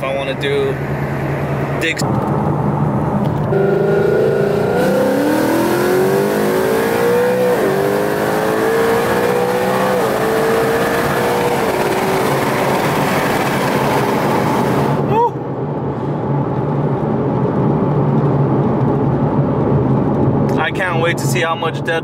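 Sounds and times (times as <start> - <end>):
car engine accelerating hard: 0.7 - 15.1.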